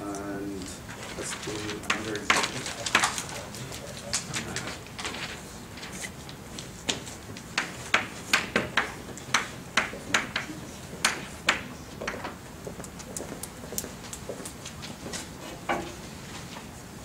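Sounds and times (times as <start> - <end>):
chalk tapping and scratching: 1.5 - 3.1.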